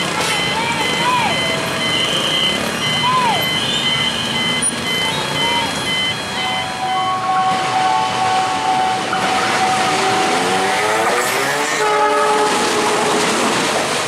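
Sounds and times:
locomotive engine and wheels: 0.0s - 14.0s
train horn blast: 7.0s - 13.6s.

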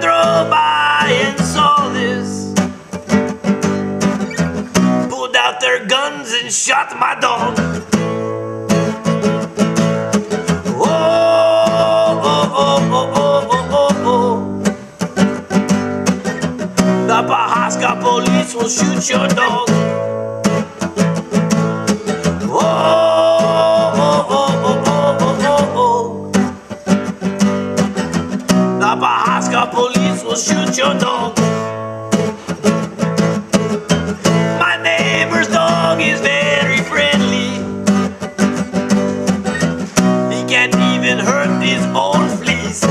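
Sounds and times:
person singing: 0.0s - 2.8s, 5.1s - 7.9s, 10.5s - 15.0s, 17.0s - 20.0s, 22.1s - 26.4s, 28.8s - 31.7s, 34.5s - 37.9s, 40.2s - 42.9s
acoustic guitar strumming: 0.0s - 42.9s.

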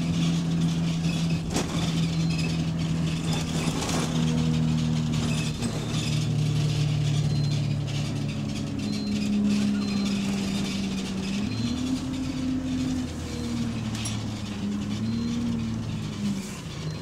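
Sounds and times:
bus engine running: 0.0s - 17.0s
road noise: 0.0s - 17.0s.

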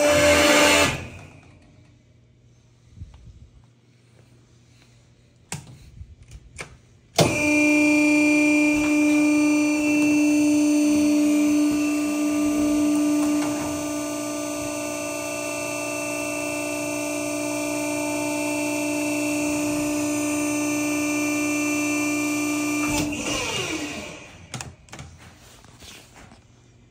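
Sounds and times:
baler motor and pump humming: 7.2s - 24.7s.

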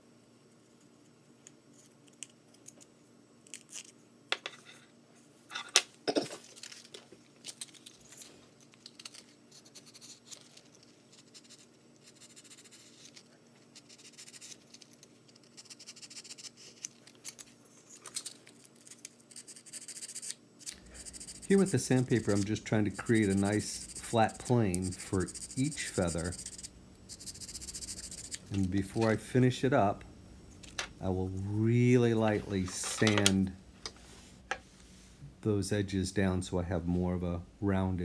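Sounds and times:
sandpaper rubbing wood: 21.0s - 28.3s.

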